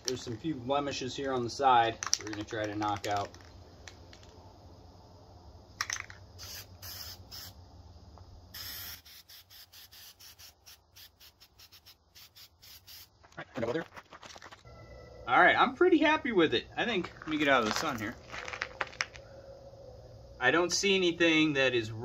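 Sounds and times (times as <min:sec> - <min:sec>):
spray paint can hissing: 0:05.8 - 0:07.6, 0:08.5 - 0:13.4.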